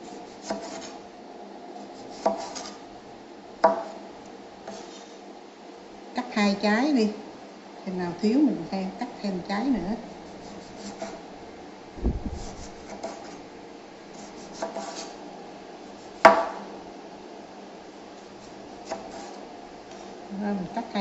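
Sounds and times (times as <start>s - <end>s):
knife slicing limes on board: 0.4s - 1.0s, 2.0s - 2.8s, 14.2s - 15.1s.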